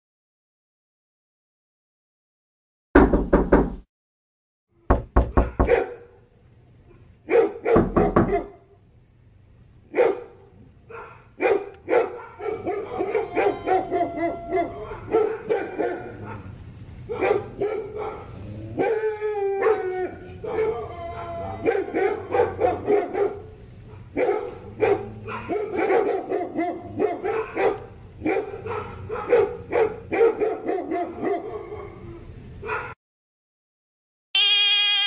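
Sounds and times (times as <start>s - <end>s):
knocking raps: 3.0s - 3.8s, 4.9s - 5.8s, 7.8s - 8.4s
dog barking: 5.5s - 6.2s, 7.3s - 8.6s, 9.9s - 16.5s, 17.1s - 19.0s, 20.4s - 33.0s.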